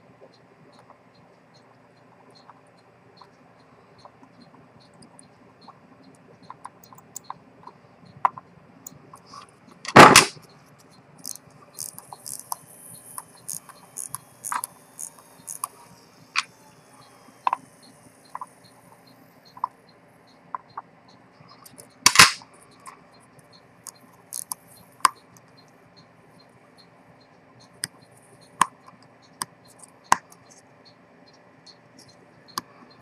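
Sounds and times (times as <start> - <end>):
small clicks and taps on watch: 0.2 - 9.8, 10.8 - 15.8, 22.6 - 25.8.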